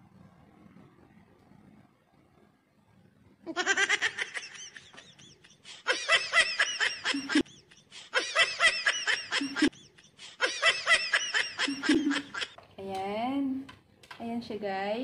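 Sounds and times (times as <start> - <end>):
high-pitched giggling laughter: 3.5 - 12.6.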